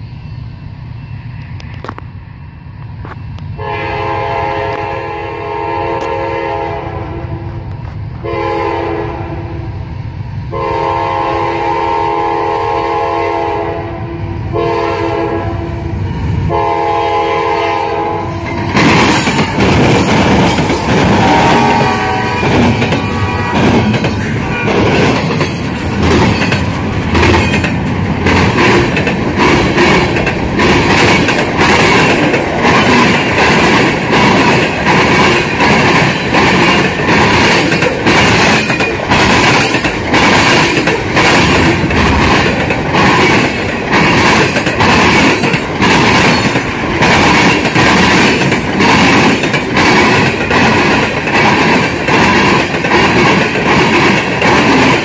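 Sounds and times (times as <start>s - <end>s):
steel wheels rumbling on rail: 0.0s - 55.0s
wheels clicking over rail joints: 18.4s - 55.0s.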